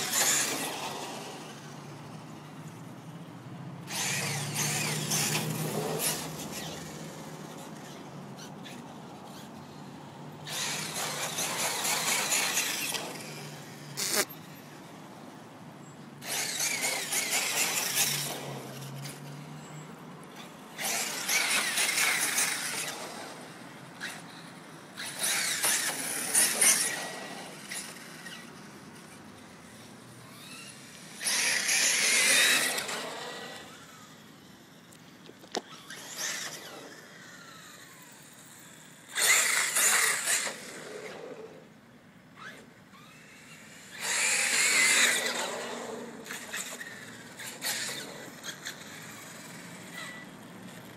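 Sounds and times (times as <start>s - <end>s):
electric motor whining: 10.4s - 14.3s.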